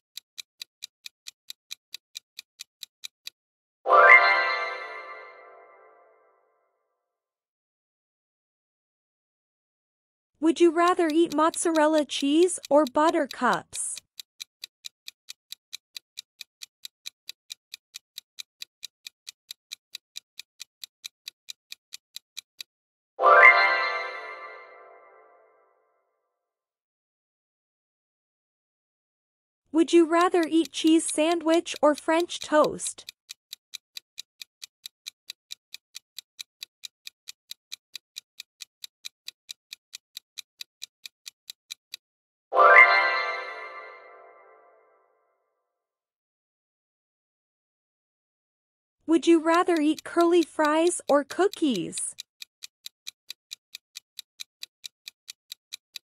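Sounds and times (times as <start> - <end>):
fast clock ticking: 0.1 - 3.4, 10.4 - 22.7, 29.8 - 42.0, 49.1 - 56.0.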